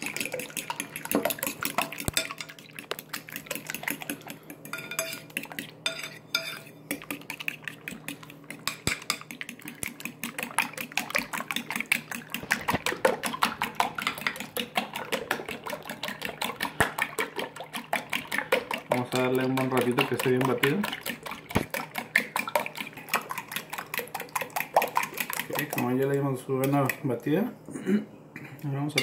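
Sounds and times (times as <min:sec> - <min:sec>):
wet slap of beaten mixture: 0:00.0 - 0:27.3
fork clinking against bowl: 0:04.6 - 0:07.2.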